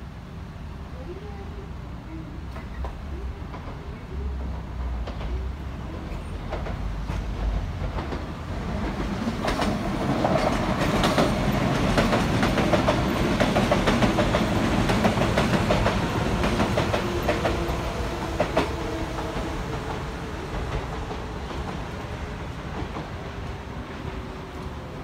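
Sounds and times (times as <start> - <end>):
steady train hum: 0.0 - 25.0
train wheels clicking over rail joints: 2.5 - 22.1.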